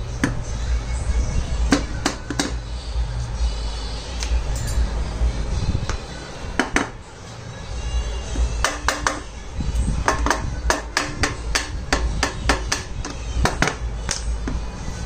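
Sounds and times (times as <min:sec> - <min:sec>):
mallet knocking on metal cover: 0:01.7 - 0:02.6, 0:06.6 - 0:07.0, 0:08.6 - 0:09.3, 0:10.0 - 0:13.8.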